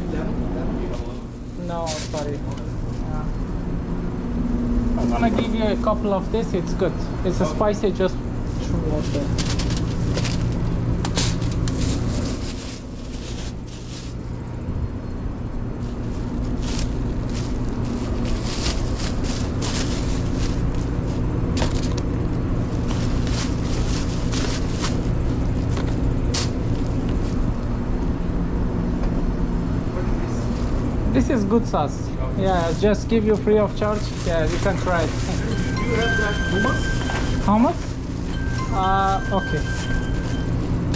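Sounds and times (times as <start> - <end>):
plastic bag and foil rustling: 1.0 - 3.4, 8.4 - 14.4, 15.8 - 27.5, 32.4 - 40.9
low hum: 2.3 - 31.1, 34.1 - 40.9.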